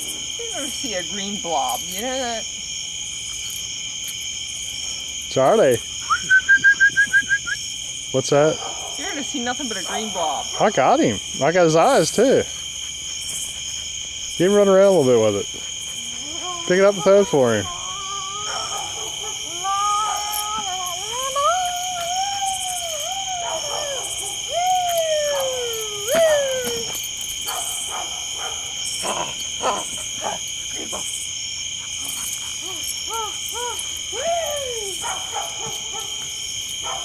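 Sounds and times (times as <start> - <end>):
night insects trilling: 0.0 - 37.0
dog whining: 15.0 - 27.8, 32.0 - 36.1.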